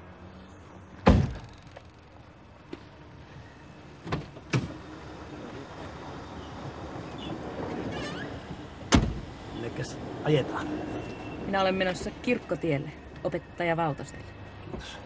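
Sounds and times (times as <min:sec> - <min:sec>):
car door slamming: 0:01.0 - 0:01.5, 0:08.9 - 0:09.3.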